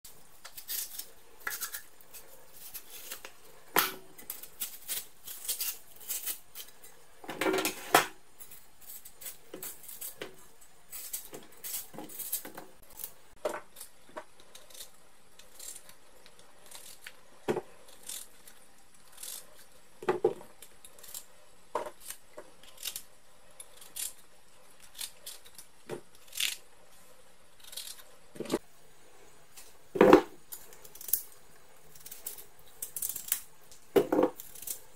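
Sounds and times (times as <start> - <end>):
knife cutting vegetables: 0.4 - 16.0.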